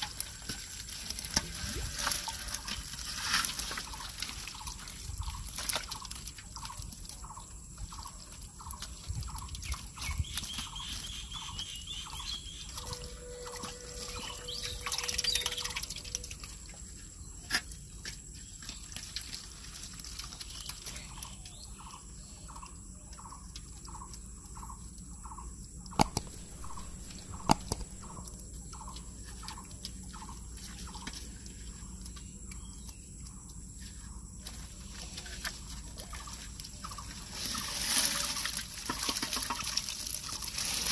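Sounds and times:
water dripping and trickling: 0.0 - 40.9
short chirping call: 26.0 - 28.2
sharp clicks: 26.0 - 28.3.

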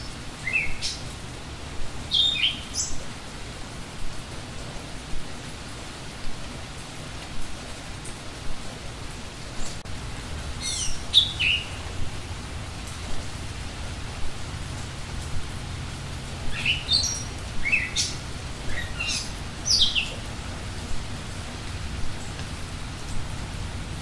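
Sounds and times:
songbirds chirping: 0.0 - 4.1, 9.0 - 23.8.

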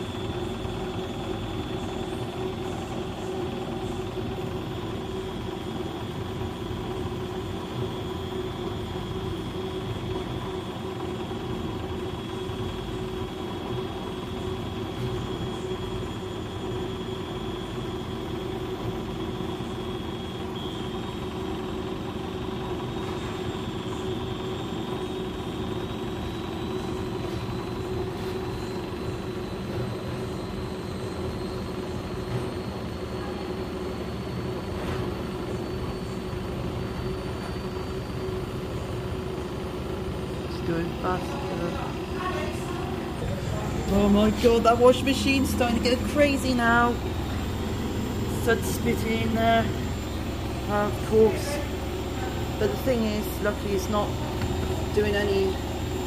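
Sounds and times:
washing machine spinning: 0.0 - 56.0.

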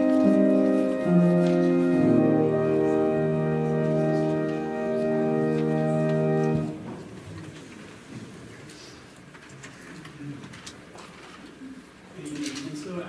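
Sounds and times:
organ playing slow chords: 0.0 - 6.9.

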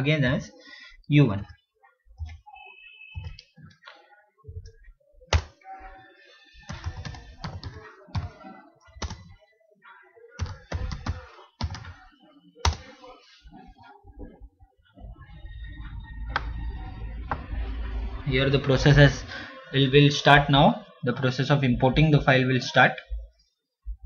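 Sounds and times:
typing on a computer keyboard: 6.7 - 8.4, 10.4 - 11.9.

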